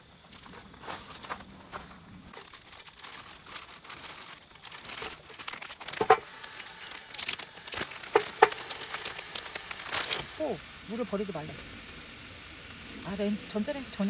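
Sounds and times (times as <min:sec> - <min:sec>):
food packaging crinkling and tearing: 0:00.3 - 0:10.5.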